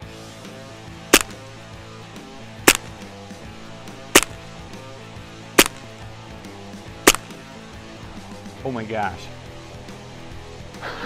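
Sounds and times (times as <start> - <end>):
background music: 0.0 - 11.0
air gun shots: 1.1 - 1.4, 2.6 - 3.1, 4.0 - 4.5, 5.6 - 6.0, 7.0 - 7.4.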